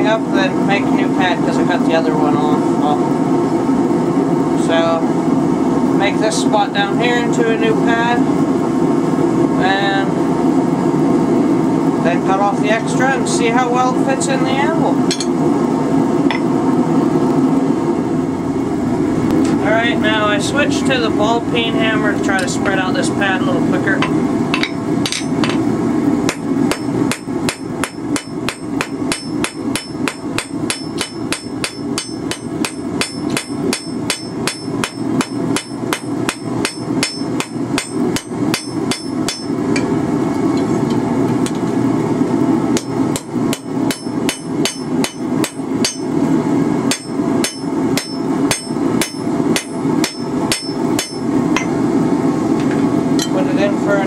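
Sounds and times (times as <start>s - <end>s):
steady low hum: 0.0s - 54.0s
hammer blows on anvil: 26.3s - 39.6s, 42.8s - 46.1s, 46.9s - 51.8s.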